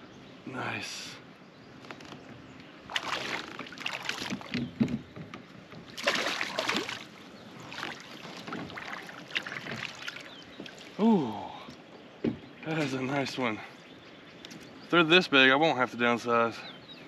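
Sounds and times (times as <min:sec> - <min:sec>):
fish splashing at the surface: 0:02.9 - 0:04.5, 0:06.0 - 0:11.0.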